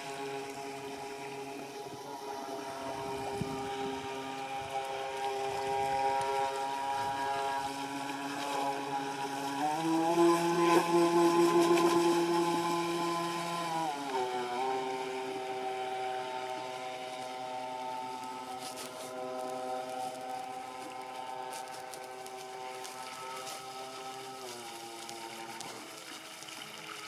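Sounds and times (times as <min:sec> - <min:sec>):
model speedboat motor running: 0:00.0 - 0:27.0.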